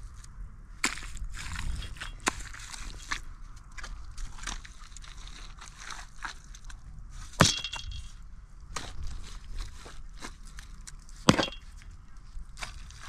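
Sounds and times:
scrapes and rustles of handwork: 0:01.0 - 0:07.4, 0:08.8 - 0:13.0
sharp ringing knock: 0:11.3 - 0:11.7.

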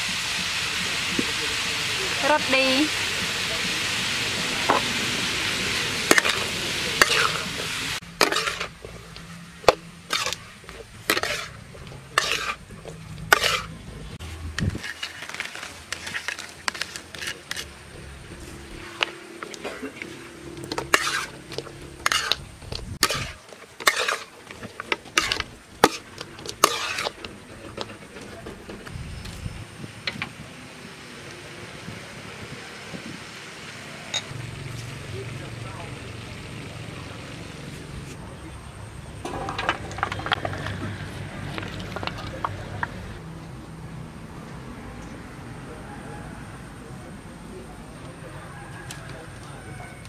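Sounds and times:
vegetables sizzling in a wok: 0:00.0 - 0:38.2
metal utensil scraping a wok: 0:04.0 - 0:29.0, 0:39.1 - 0:43.2.

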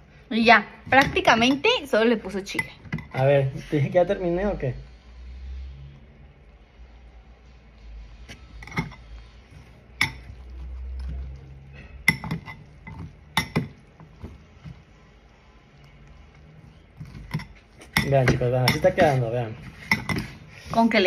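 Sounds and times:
fork clinking against glass bowl: 0:11.7 - 0:13.7, 0:17.2 - 0:19.2.

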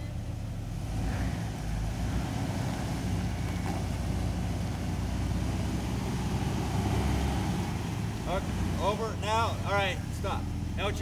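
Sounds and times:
car engine running at low revs: 0:00.0 - 0:11.0.

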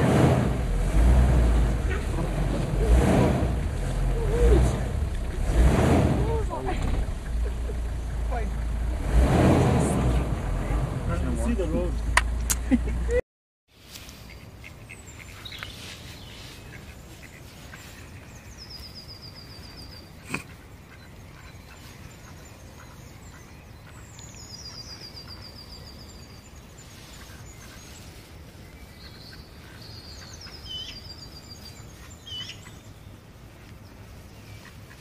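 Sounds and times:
songbird trilling: 0:14.2 - 0:33.2.

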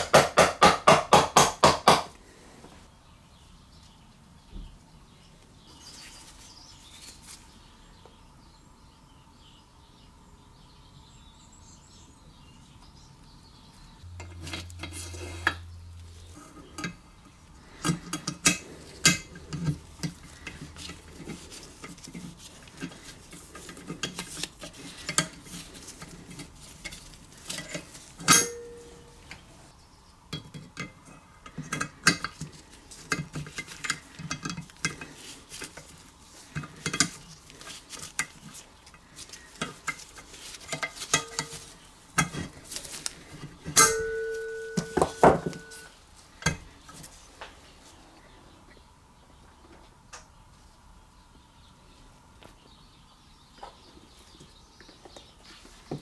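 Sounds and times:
metallic clicks of engine parts: 0:14.1 - 0:25.4.

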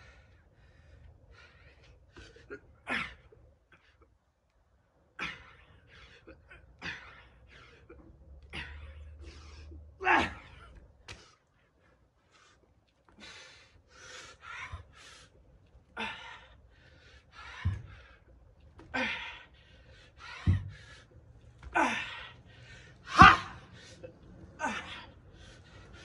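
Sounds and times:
man exhaling and gasping: 0:15.9 - 0:26.0.

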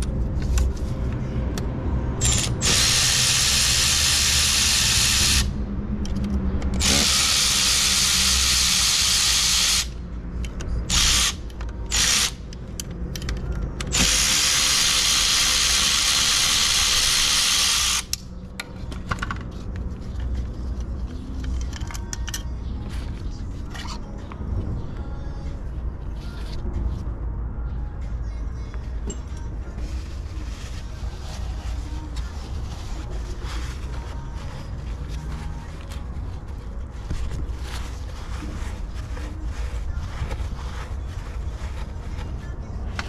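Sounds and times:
power tool running fasteners: 0:02.2 - 0:05.5, 0:06.8 - 0:09.9, 0:13.9 - 0:18.2.

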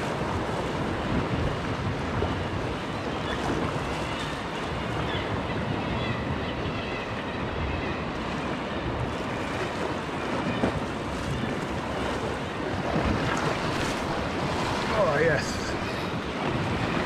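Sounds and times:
sea washing against rocks: 0:00.0 - 0:04.8, 0:09.1 - 0:17.0
wind buffeting microphone: 0:00.0 - 0:17.0.

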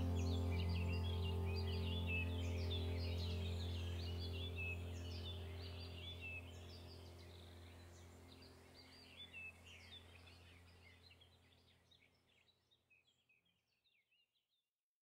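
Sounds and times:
low steady hum: 0:00.0 - 0:11.6
birds chirping and twittering: 0:00.0 - 0:14.2.

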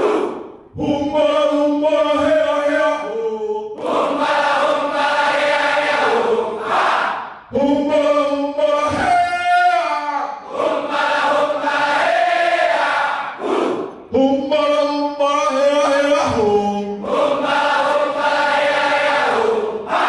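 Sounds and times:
crowd singing in unison: 0:00.0 - 0:07.5, 0:10.4 - 0:14.0, 0:16.0 - 0:20.0.

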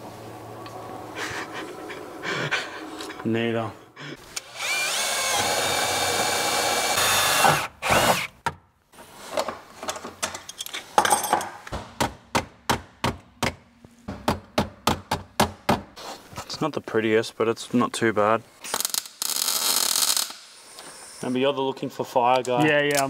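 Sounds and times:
cordless drill running: 0:04.4 - 0:08.3.

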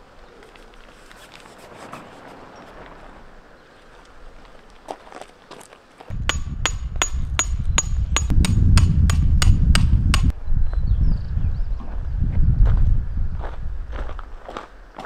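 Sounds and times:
hammer striking metal tent peg: 0:06.1 - 0:10.3
low rumble: 0:06.1 - 0:14.4.

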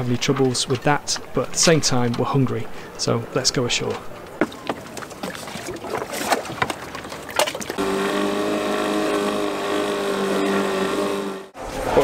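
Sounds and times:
small outboard motor running: 0:06.6 - 0:11.6.

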